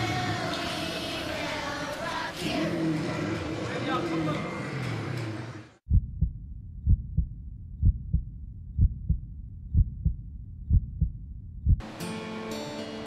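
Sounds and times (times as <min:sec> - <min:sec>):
heartbeat double thump: 0:05.9 - 0:11.8.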